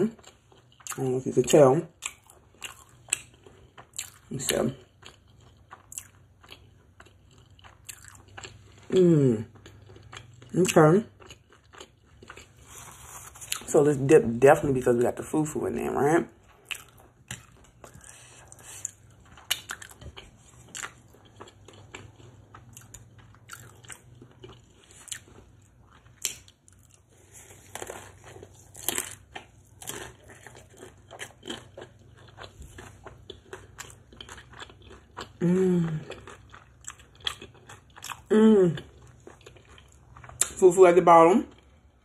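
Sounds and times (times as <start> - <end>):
crisp crunches of chewing: 2.0 - 13.7, 16.4 - 40.6
person humming: 35.4 - 36.0.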